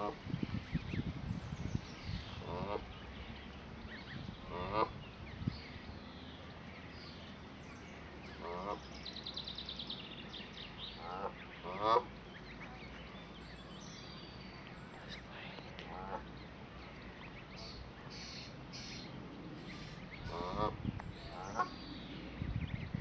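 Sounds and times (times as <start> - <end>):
geese honking: 2.4 - 5.1, 8.2 - 8.9, 10.9 - 12.2, 19.7 - 21.8.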